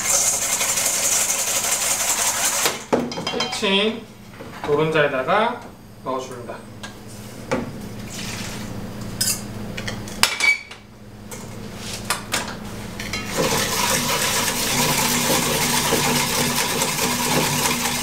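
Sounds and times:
wire whisk beating metal bowl: 13.1s - 18.0s.

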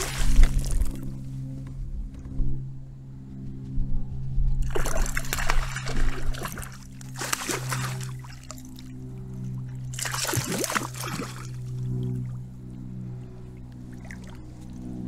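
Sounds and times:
water splashing: 0.0s - 1.1s, 4.6s - 12.4s, 13.9s - 14.5s.

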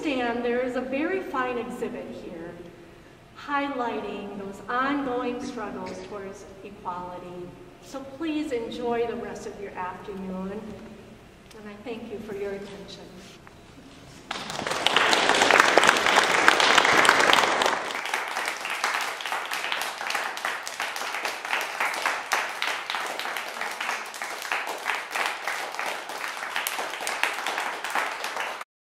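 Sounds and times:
audience applauding: 14.3s - 28.7s.

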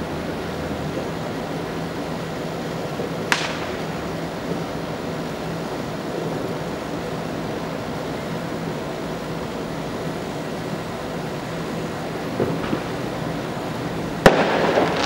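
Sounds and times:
distant fireworks hiss: 0.0s - 15.0s
firework crack: 2.0s - 6.7s, 10.6s - 15.0s.

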